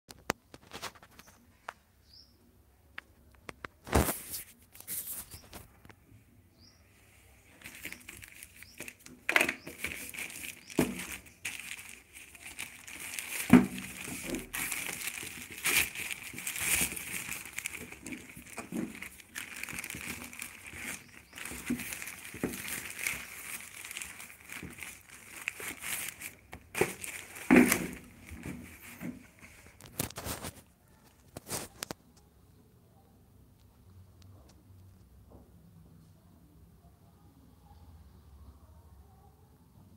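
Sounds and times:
plastic bag crinkling: 7.5s - 32.0s.

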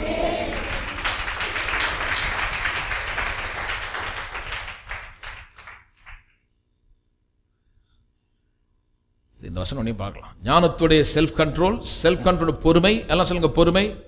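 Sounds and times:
congregation applauding: 0.0s - 6.3s.

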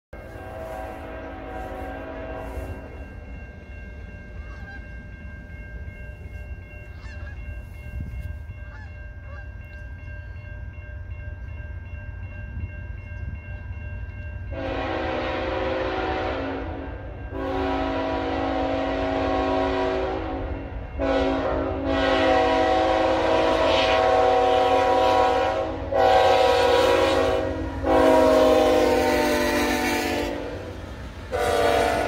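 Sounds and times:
low train rumble: 0.1s - 32.0s
locomotive horn: 0.2s - 3.0s, 14.5s - 32.0s
crossing warning bell ringing: 0.2s - 32.0s.

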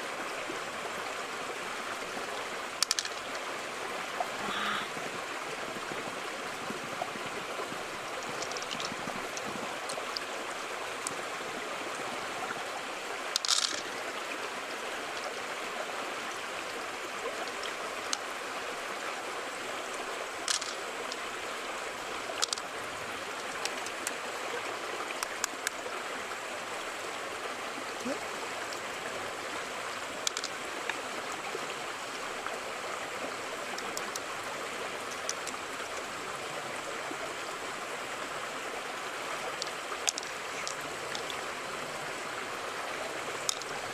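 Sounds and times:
stream water running: 0.0s - 43.9s
shell handling clicks: 13.4s - 13.8s, 22.4s - 22.7s, 30.3s - 30.5s, 35.1s - 35.6s.

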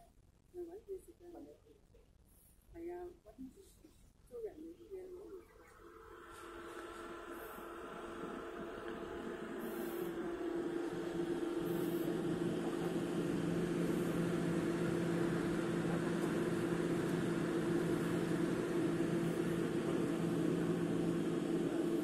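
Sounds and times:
steady machine hum: 4.4s - 22.0s
low drone: 5.2s - 22.0s.

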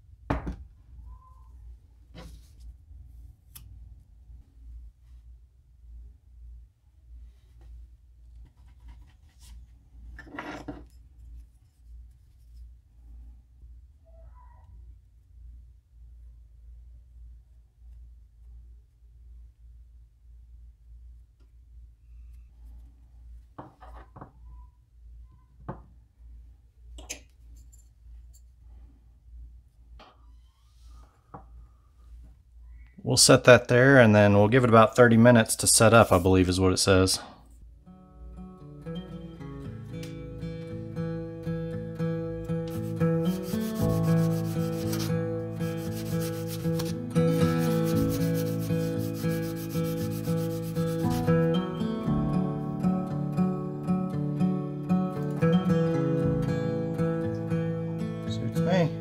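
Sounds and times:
low steady hum: 0.0s - 10.2s
tools knocking on wooden workbench: 0.3s - 0.6s
acoustic guitar music: 37.7s - 59.0s
sandpaper rubbing on wood: 42.7s - 51.4s.

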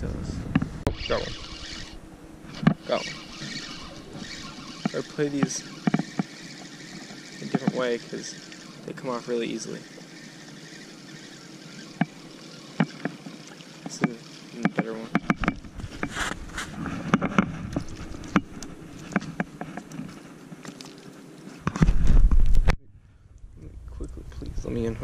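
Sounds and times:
fishing rod and reel clicks: 0.6s - 21.1s
low rumble: 21.9s - 25.0s.

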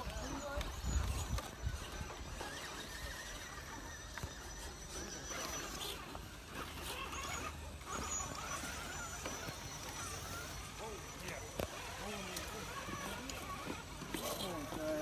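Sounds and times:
electric motor and gears whining: 0.0s - 15.0s.

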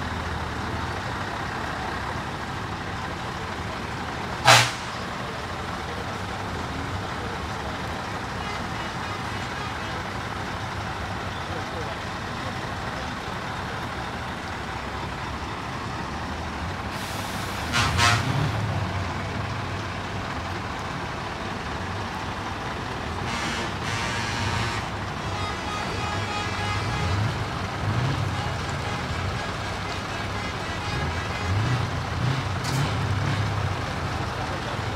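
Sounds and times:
diesel trucks driving past: 0.0s - 34.9s
truck horn blast: 4.4s - 5.0s, 17.4s - 18.6s, 23.2s - 32.4s.

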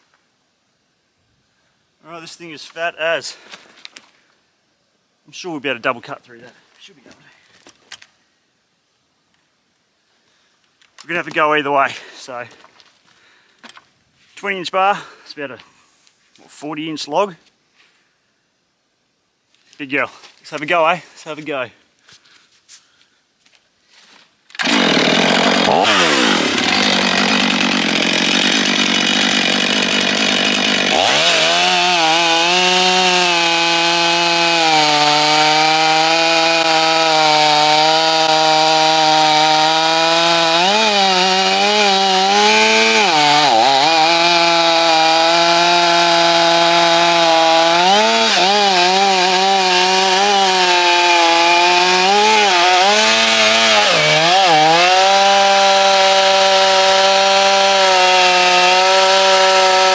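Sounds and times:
chainsaw cutting log: 24.5s - 59.9s.

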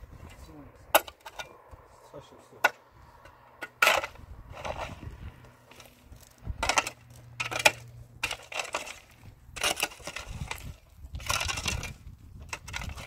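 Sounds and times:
hand tool scraping stony earth: 3.0s - 13.0s.

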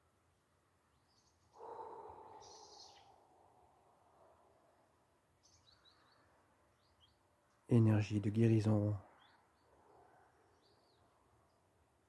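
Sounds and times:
faint high bird chirps: 0.9s - 3.6s.

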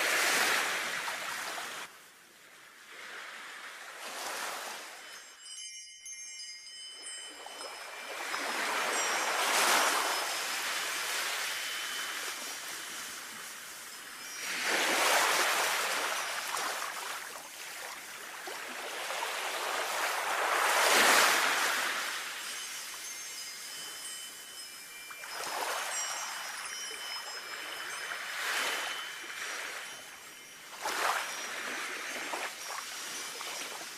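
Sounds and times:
sea waves washing on shore: 0.0s - 5.2s, 7.3s - 33.9s
wind chimes ringing: 4.5s - 33.9s.

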